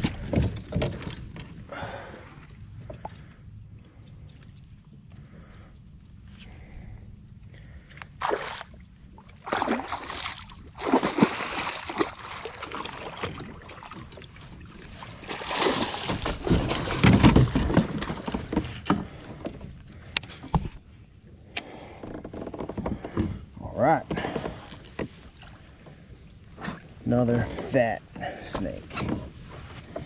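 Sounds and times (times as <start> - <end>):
water splashing and sloshing: 0.0 - 3.3, 7.6 - 20.8.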